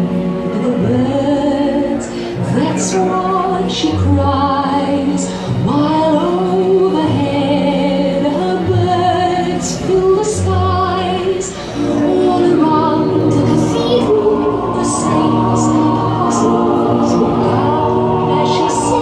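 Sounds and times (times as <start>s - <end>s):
woman singing operatically: 0.2s - 19.0s
repeating bass line: 11.9s - 19.0s.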